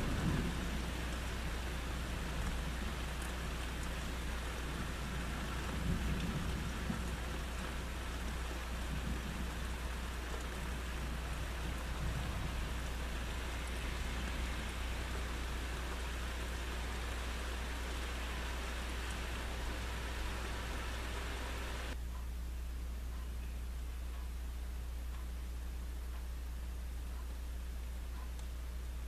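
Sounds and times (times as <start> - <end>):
low thunder rumble: 0.0 - 22.0
rain falling on foliage: 0.0 - 22.0.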